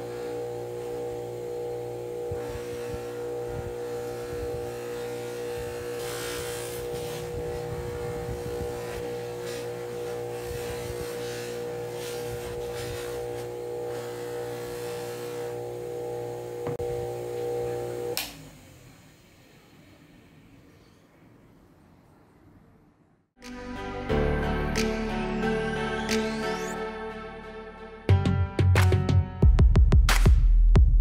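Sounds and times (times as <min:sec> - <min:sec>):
polishing motor humming: 0:00.0 - 0:18.8.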